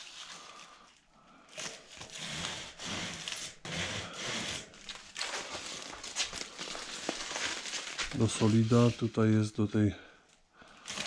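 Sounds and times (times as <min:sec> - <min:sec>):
foil scraping and crinkling: 0:00.0 - 0:00.8, 0:01.5 - 0:09.2, 0:10.8 - 0:11.0.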